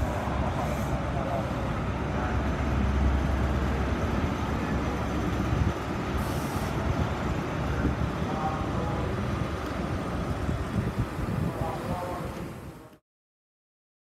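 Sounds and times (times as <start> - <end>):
diesel engine low rumble: 0.0 - 13.0.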